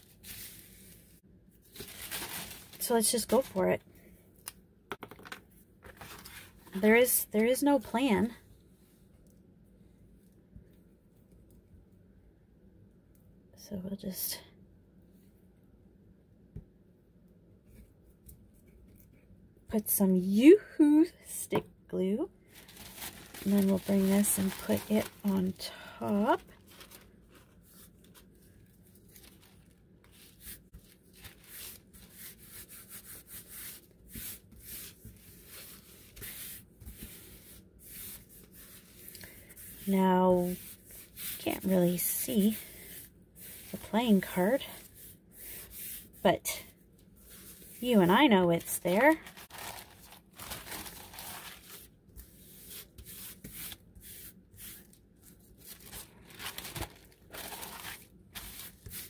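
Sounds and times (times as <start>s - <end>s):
paper napkin rustling: 0.0s - 3.6s, 22.5s - 46.2s, 47.2s - 59.0s.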